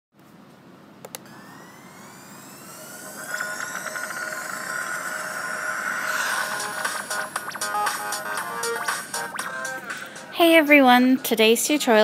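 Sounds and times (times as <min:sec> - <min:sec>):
shimmering fast-pulsing tone: 0:01.3 - 0:10.4
synth sweeps gliding: 0:01.3 - 0:11.1.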